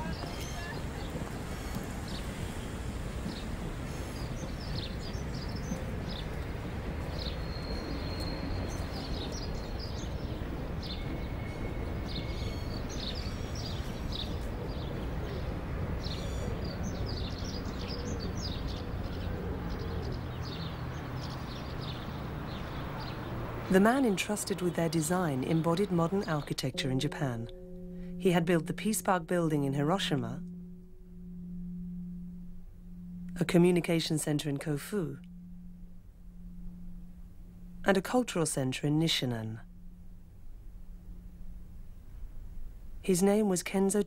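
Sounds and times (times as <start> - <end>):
small birds chirping: 0.0 - 32.2
thin whistled bird notes: 7.1 - 14.4
low background rumble: 20.9 - 44.0.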